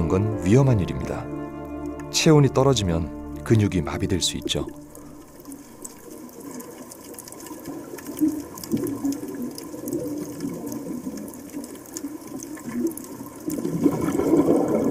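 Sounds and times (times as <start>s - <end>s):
underwater churning sea water: 4.8s - 14.9s.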